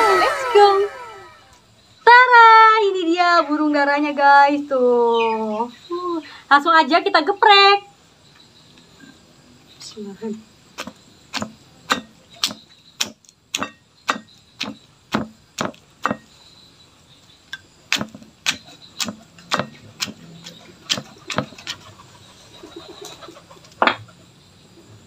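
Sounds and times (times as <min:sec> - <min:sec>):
stone pestle pounding in mortar: 0:10.8 - 0:16.3, 0:17.9 - 0:21.8.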